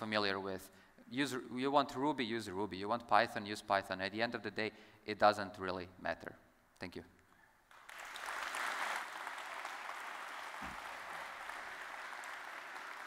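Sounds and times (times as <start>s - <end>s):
audience applauding: 7.7s - 13.0s.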